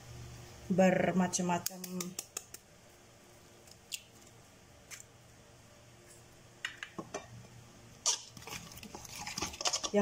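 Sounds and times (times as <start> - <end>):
kitchen clicks and taps: 6.6 - 7.3.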